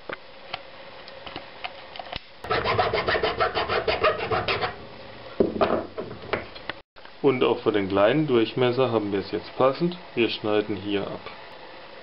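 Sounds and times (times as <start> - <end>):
file rasping on steel: 2.4 - 4.8.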